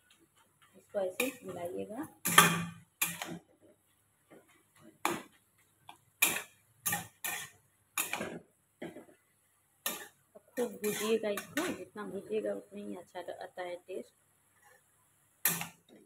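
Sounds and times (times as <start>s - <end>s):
metal spatula scraping a metal pan: 1.2s - 3.4s, 6.2s - 8.4s, 9.9s - 11.8s.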